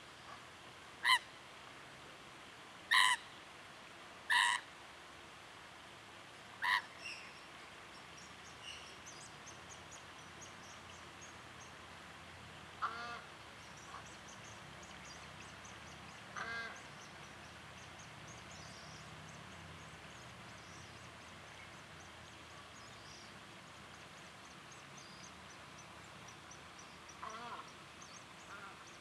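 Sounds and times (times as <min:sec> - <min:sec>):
moorhen calls: 0:01.0 - 0:01.3, 0:02.9 - 0:03.3, 0:04.3 - 0:04.7, 0:06.6 - 0:07.3, 0:12.8 - 0:14.4, 0:16.2 - 0:17.4, 0:27.0 - 0:29.0.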